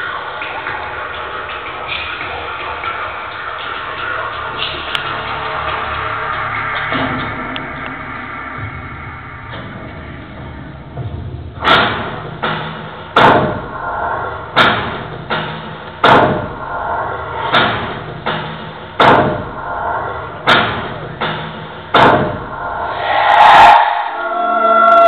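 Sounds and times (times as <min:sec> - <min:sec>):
faint sustained drone: 0:22.8 - 0:25.0.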